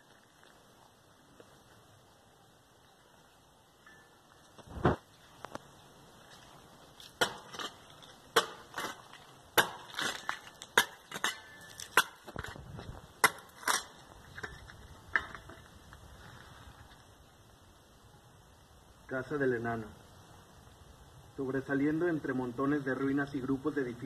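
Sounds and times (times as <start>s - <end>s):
digging tool striking dirt: 7.0s - 12.6s, 13.2s - 15.6s.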